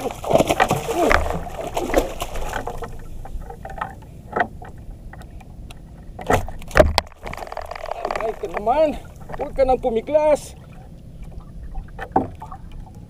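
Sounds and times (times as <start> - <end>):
water splashing: 0.0 - 13.0
knocks against wooden hull: 0.1 - 4.8, 6.2 - 9.6.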